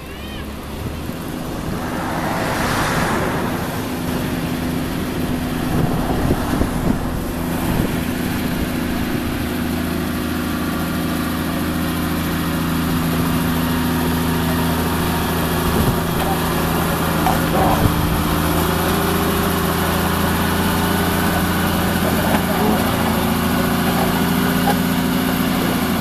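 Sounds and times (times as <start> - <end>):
diesel engine running: 0.0 - 26.0
railcar moving along track: 0.1 - 26.0
brief rushing noise: 1.3 - 6.9.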